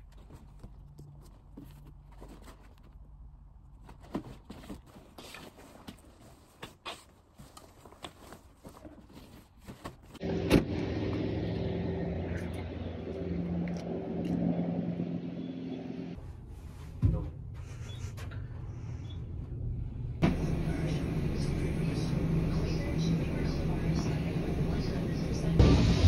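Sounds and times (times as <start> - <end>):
vehicle engine rumbling: 10.1 - 16.8, 17.4 - 26.0.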